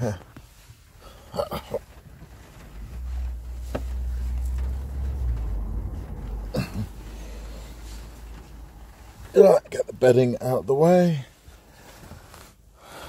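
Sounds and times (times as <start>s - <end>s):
rustle: 0.0s - 13.0s
microphone handling rumble: 2.0s - 9.4s.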